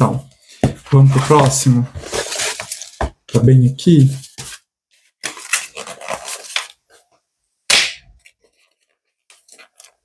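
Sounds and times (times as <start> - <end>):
package rustling: 1.2 - 3.1, 4.3 - 7.0, 8.3 - 10.0
sharp smack: 7.7 - 8.1.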